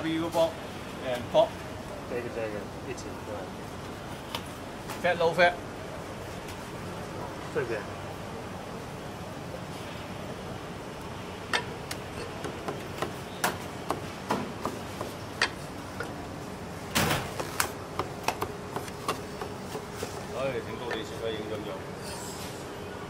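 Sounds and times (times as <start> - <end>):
cleaver chopping meat on wooden block: 12.4 - 15.6.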